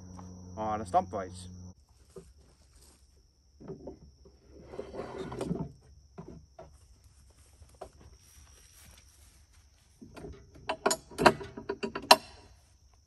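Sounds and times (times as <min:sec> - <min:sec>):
wood scraping on metal: 0:03.6 - 0:06.3.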